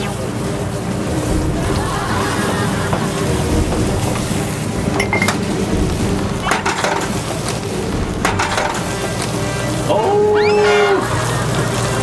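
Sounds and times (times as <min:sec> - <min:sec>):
steady hiss: 0:00.0 - 0:12.0
dishes and utensils clinking: 0:01.2 - 0:09.8.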